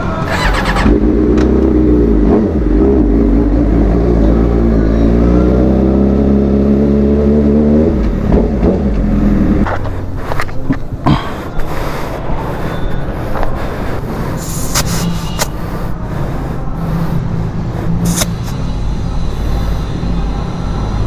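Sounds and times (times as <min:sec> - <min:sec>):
motorcycle engine revving: 0:00.0 - 0:10.2.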